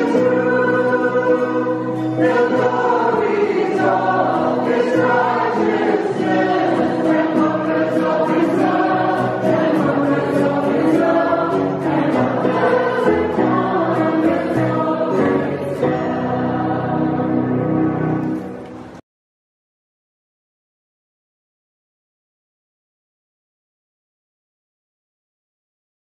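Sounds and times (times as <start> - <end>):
mixed choir singing: 0.0 - 18.2
guitar: 0.0 - 19.0
keyboard: 0.0 - 19.0.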